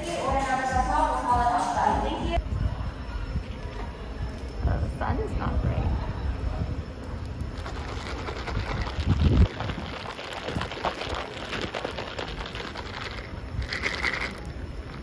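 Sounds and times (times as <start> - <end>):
low microphone rumble: 0.0 - 15.0
jelly pieces rattling against cup: 7.6 - 15.0.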